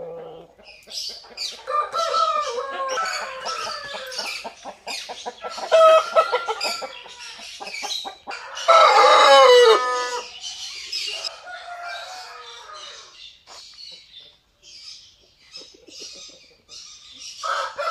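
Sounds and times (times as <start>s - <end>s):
chickens clucking: 0.0s - 17.9s
rooster crowing: 1.6s - 4.3s, 8.3s - 10.3s, 11.1s - 13.2s, 17.4s - 17.9s.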